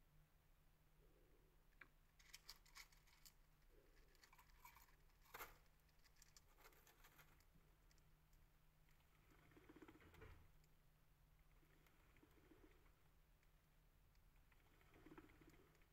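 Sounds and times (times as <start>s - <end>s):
mouse crunching seeds: 2.2s - 10.0s.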